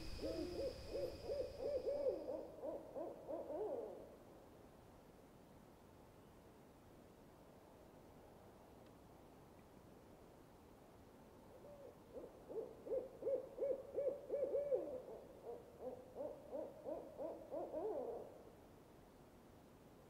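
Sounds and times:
lower owl voice hooting: 0.0s - 4.2s, 11.6s - 18.3s
owl hooting: 0.0s - 4.2s, 11.5s - 18.4s.

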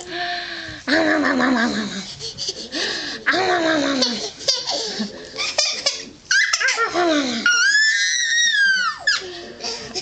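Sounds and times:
baby squealing: 6.3s - 6.8s, 7.5s - 9.2s.

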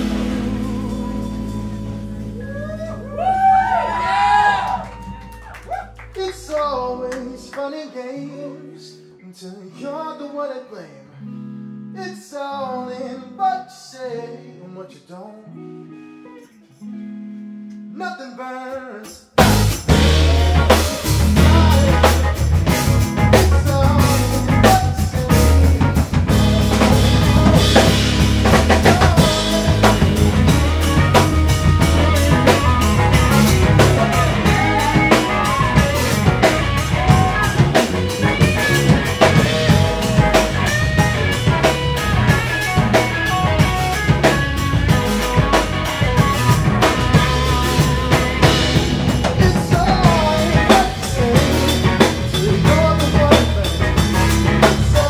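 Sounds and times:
electric guitar melody: 0.0s - 4.9s, 5.8s - 13.4s, 14.2s - 18.0s, 19.4s - 55.0s
drum kit: 0.0s - 7.5s, 19.3s - 55.0s.

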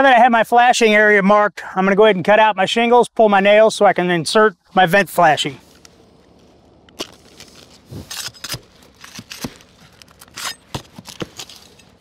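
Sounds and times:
hand tools scraping shingles: 7.0s - 12.0s.

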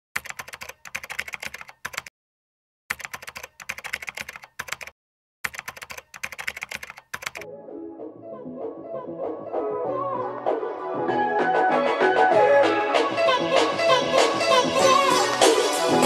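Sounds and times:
keyboard key clicks: 0.2s - 2.1s, 2.9s - 4.9s, 5.5s - 7.4s
music: 7.4s - 16.0s.

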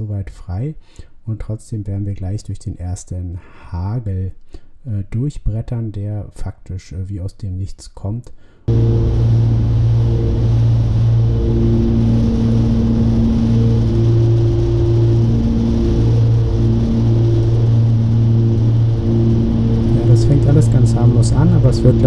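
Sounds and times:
propeller plane engine drone: 8.7s - 22.0s.

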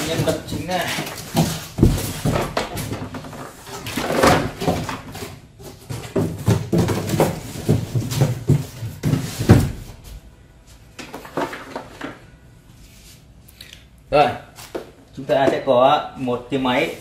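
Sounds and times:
plastic tank knocks and bumps: 0.0s - 5.2s, 5.8s - 9.9s.

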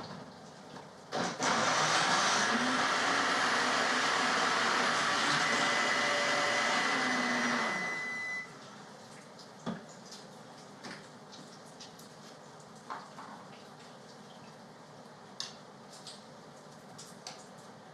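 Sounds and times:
blender motor running: 1.2s - 8.5s.

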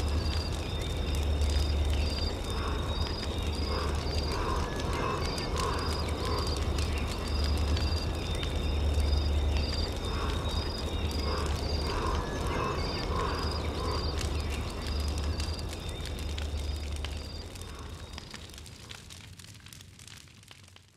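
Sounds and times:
crackling flames: 0.0s - 20.9s.

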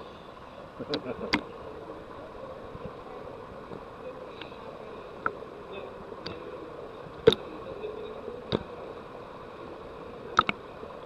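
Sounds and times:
pool hum and hiss: 0.0s - 11.0s
sharp clicks: 10.4s - 10.6s.

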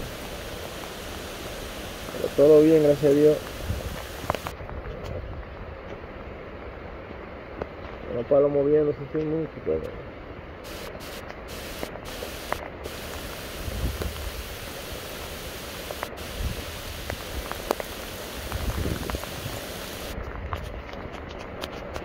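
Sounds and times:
rain hissing: 0.0s - 4.6s, 10.6s - 20.3s
wind gusts rumbling on microphone: 0.0s - 8.2s, 10.0s - 22.0s
wind in the trees: 0.0s - 8.2s, 9.9s - 22.0s.

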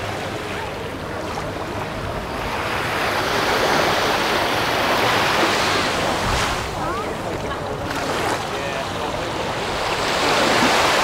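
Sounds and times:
sea waves washing onto beach: 0.0s - 11.0s.

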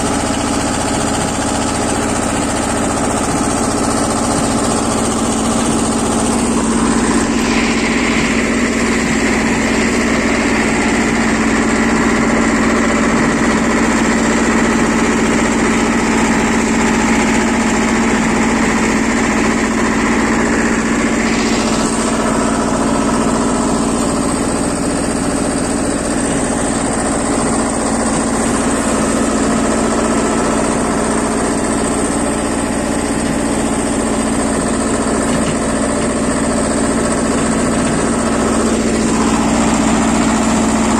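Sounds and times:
high whine: 0.0s - 40.9s
tractor diesel engine running: 0.0s - 40.9s.

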